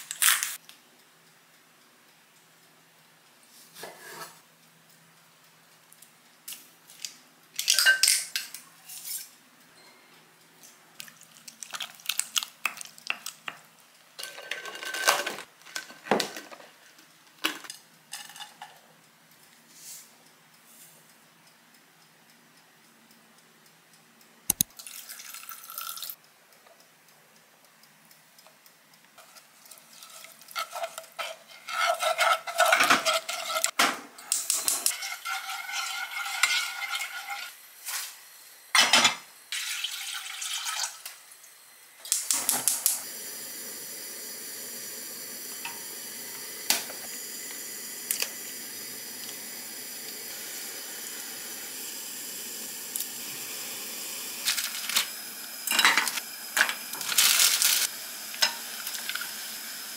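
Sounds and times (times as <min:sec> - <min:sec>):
pots and utensils clattering: 0:07.6 - 0:09.0, 0:14.2 - 0:16.8, 0:17.4 - 0:18.8, 0:30.0 - 0:37.6, 0:38.8 - 0:39.2, 0:54.4 - 0:59.2
utensil stirring in saucepan: 0:29.2 - 0:33.8, 0:34.5 - 0:37.6
steady hiss: 0:41.2 - 0:59.9.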